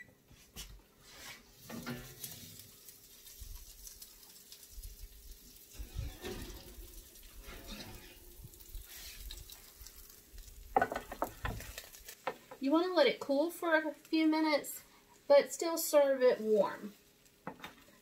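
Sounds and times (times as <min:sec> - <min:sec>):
faint sizzle from hot pan: 0:01.0 - 0:18.0
baking sheet clanks and knocks: 0:10.8 - 0:11.7.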